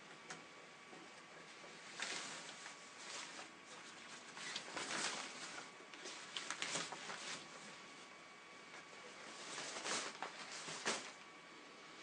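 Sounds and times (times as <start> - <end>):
cloth cover rustling: 1.7 - 8.0, 9.2 - 11.2.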